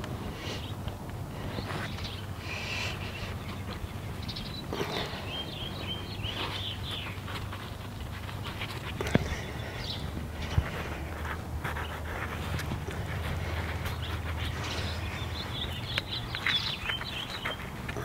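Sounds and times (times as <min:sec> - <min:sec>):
hands rustling potting soil: 0:00.0 - 0:18.0.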